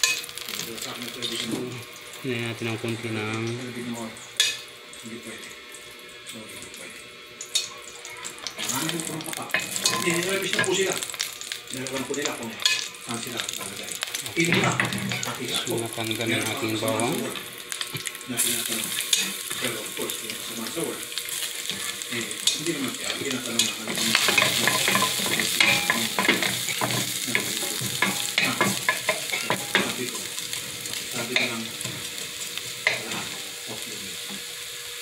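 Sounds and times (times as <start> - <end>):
garlic sizzling in oil: 0.0 - 35.0
spatula scraping and tapping pan: 22.4 - 30.0.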